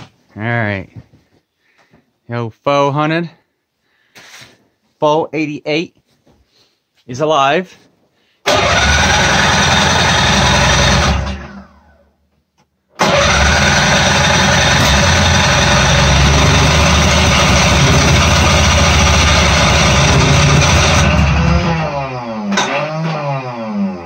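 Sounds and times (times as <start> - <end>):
snowmobile engine running: 13.1 - 21.9.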